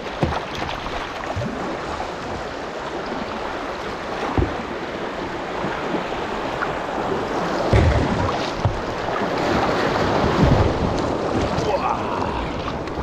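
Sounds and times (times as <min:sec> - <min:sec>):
river water rushing: 0:00.0 - 0:13.0
low thumps: 0:04.3 - 0:04.8, 0:07.6 - 0:09.0.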